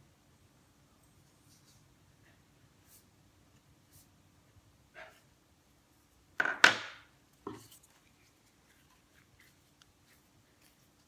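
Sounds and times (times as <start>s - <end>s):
tools clattering on a table: 6.4s - 7.6s.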